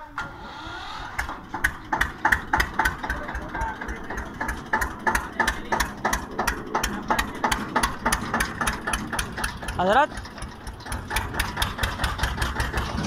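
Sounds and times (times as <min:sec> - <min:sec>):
tractor diesel engine knocking: 0:01.2 - 0:13.0.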